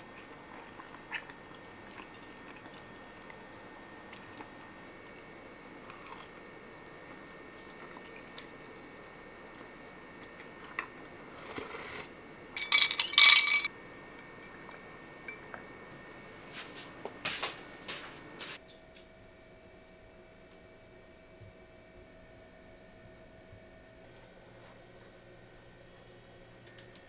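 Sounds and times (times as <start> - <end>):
ceramic plates clinking: 12.6 - 13.7.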